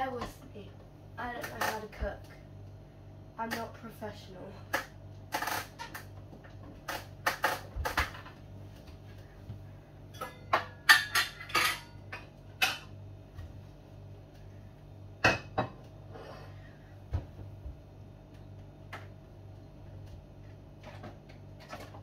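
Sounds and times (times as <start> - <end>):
faint steady hum: 0.0 - 22.0
dishes clattering: 10.1 - 12.9, 15.2 - 15.8.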